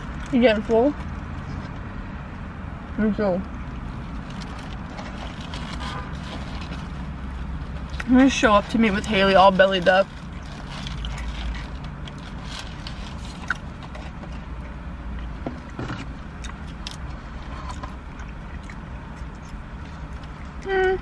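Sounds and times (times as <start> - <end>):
paper packet crinkling: 9.0 - 14.0
person chewing: 10.2 - 21.0.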